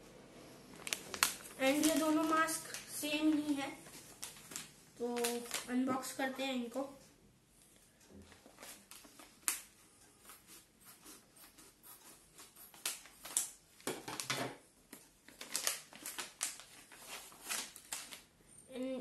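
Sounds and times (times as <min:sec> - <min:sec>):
plastic crinkling: 0:00.7 - 0:06.2, 0:12.5 - 0:18.3.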